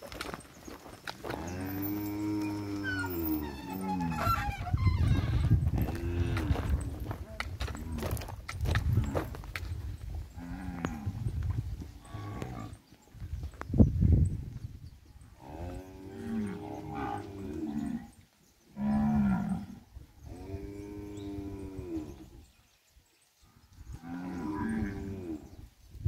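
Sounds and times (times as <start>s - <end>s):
cattle mooing: 1.3s - 4.6s, 5.8s - 6.8s.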